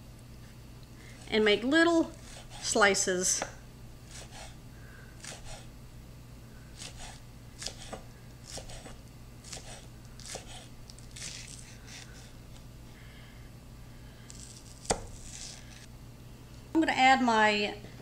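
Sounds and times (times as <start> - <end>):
faint hum: 0.0 - 18.0
knife slicing green onions: 2.0 - 3.5, 4.1 - 4.6, 5.2 - 5.7, 6.8 - 12.3, 14.3 - 15.9.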